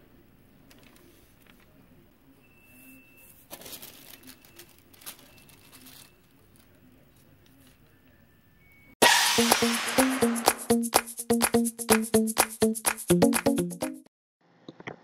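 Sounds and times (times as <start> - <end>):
paper rustling and crinkling: 3.4 - 7.8.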